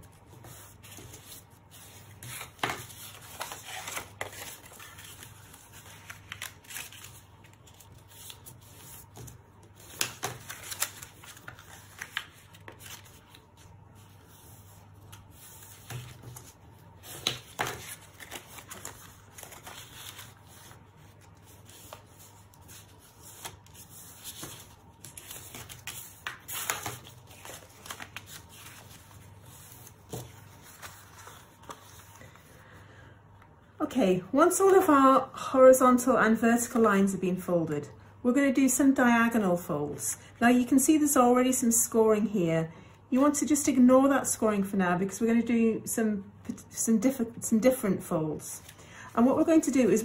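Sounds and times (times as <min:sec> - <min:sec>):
cardstock rustling and crackling: 0:00.3 - 0:13.7, 0:15.0 - 0:32.4.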